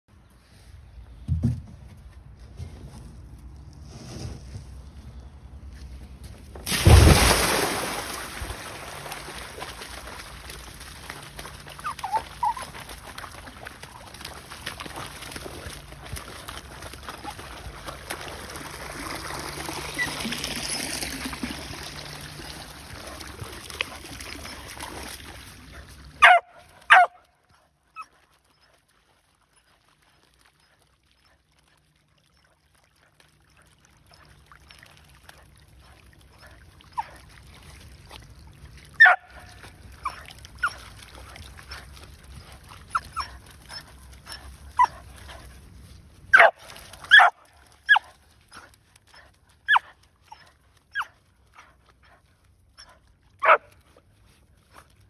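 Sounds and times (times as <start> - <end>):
water trickling: 6.7 - 52.2
dog whining yelps: 11.7 - 12.8, 26.2 - 27.2, 39.0 - 39.3, 42.9 - 45.0, 47.1 - 48.1, 49.7 - 51.2, 52.8 - 53.6.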